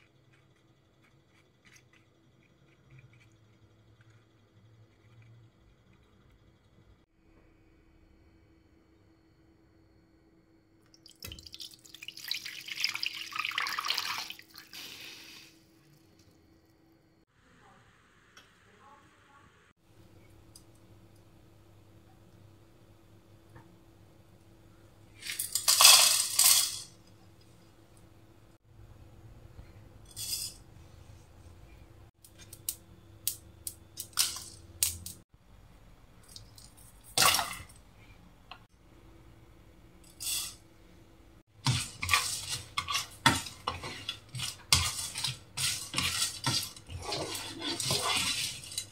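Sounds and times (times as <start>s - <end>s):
hot oil sizzling and spattering: 41.5s - 48.9s
spices pattering on a pan: 41.6s - 48.9s.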